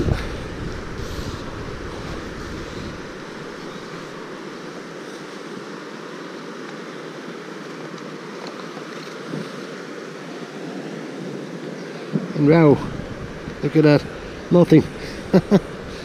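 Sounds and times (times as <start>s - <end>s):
wind buffeting microphone: 0.0s - 4.3s, 12.2s - 16.0s
river water rushing over rapids: 0.0s - 16.0s.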